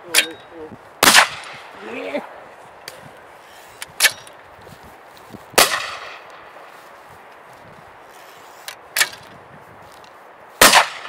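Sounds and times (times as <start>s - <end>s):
shotgun shots: 1.0s - 1.7s, 5.6s - 6.2s, 10.6s - 11.0s.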